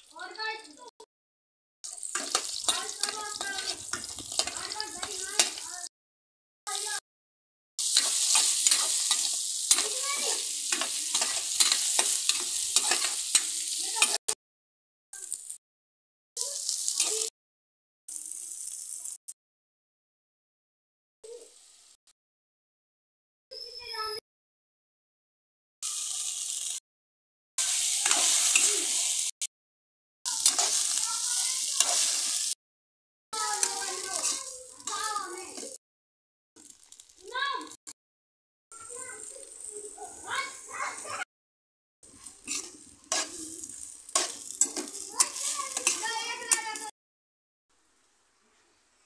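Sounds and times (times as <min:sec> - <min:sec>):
onions sizzling in hot oil: 0:01.8 - 0:05.9, 0:06.7 - 0:07.0, 0:07.8 - 0:14.4, 0:15.2 - 0:15.6, 0:16.4 - 0:17.3, 0:18.1 - 0:19.4, 0:21.3 - 0:22.0, 0:25.8 - 0:26.8, 0:27.6 - 0:29.4, 0:30.3 - 0:32.6, 0:33.4 - 0:35.8, 0:36.6 - 0:37.8, 0:38.7 - 0:41.3, 0:42.0 - 0:47.0
spatula scraping pan: 0:01.9 - 0:05.7, 0:07.8 - 0:14.2, 0:27.6 - 0:28.8, 0:30.3 - 0:32.5, 0:33.4 - 0:35.8, 0:42.1 - 0:46.9.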